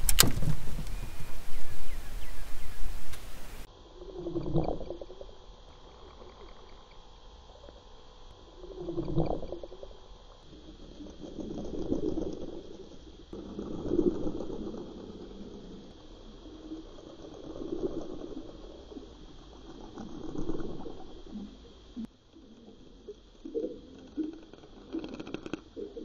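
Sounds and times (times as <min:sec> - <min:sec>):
underwater lure buzzing: 0:00.0 - 0:03.7
faint high hum: 0:00.0 - 0:24.9.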